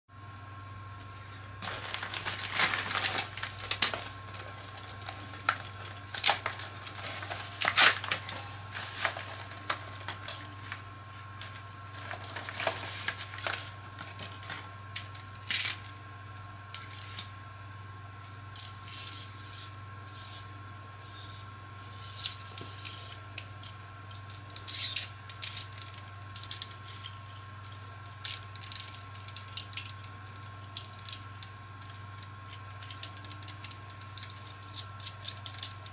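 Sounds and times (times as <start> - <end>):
plastic mailer crinkling: 1.6 - 10.8.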